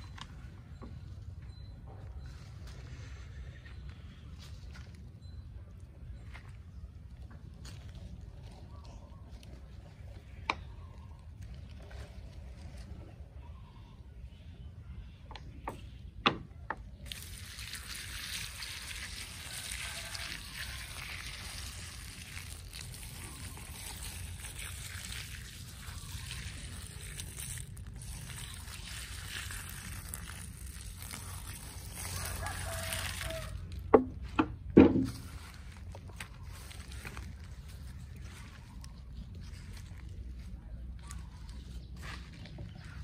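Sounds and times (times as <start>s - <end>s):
water splashing onto soil: 17.0s - 33.9s.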